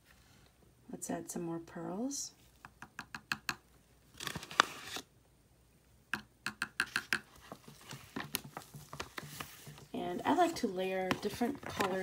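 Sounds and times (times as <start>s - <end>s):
metal spoon tapping plastic tub: 6.1s - 7.3s.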